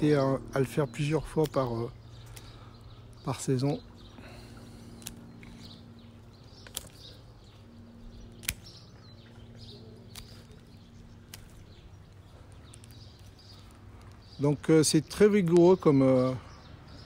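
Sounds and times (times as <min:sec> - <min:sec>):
secateurs snipping shoots: 0:04.9 - 0:05.8, 0:06.6 - 0:07.2, 0:08.3 - 0:08.9, 0:10.0 - 0:11.9.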